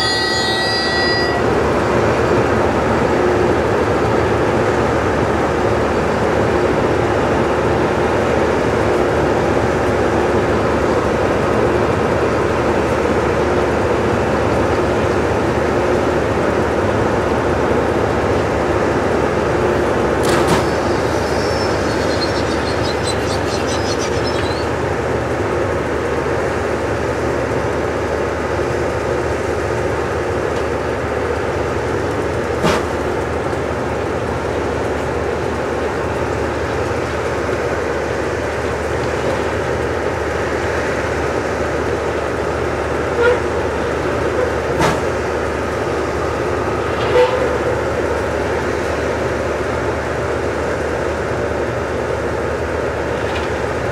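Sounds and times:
faint high squeaks: 0.0 - 1.5, 20.6 - 24.8
rail grinding machinery noise: 0.0 - 53.9.

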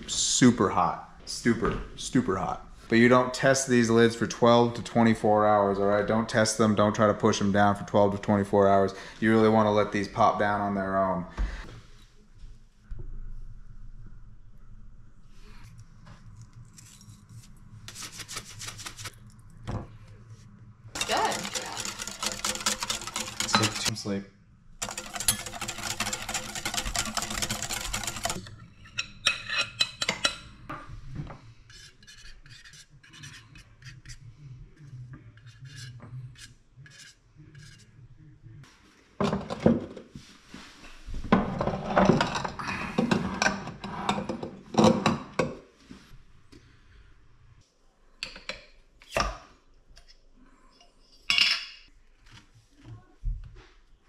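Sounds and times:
glass jars knocking and rubbing: 21.0 - 23.9, 24.8 - 28.4
kitchen clicks and knocks: 21.0 - 23.9, 41.4 - 45.6
spoon tapping and scraping: 21.0 - 23.9, 24.8 - 30.5
whisk beating in a glass bowl: 21.0 - 23.9, 24.8 - 28.4.

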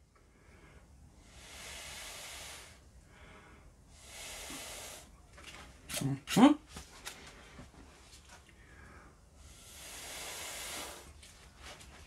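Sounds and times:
breath blown through a straw: 1.2 - 2.8, 3.9 - 5.1, 9.4 - 11.2.

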